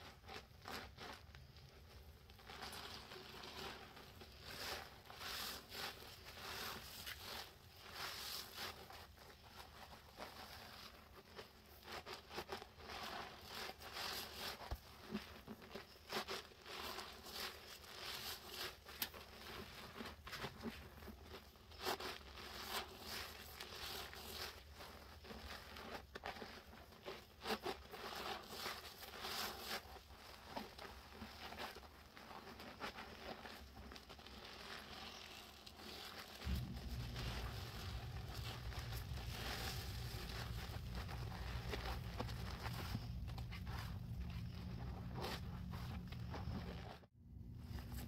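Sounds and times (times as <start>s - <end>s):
wet sponge squelching: 0.1s - 47.1s
foam bubbles popping: 36.4s - 42.2s.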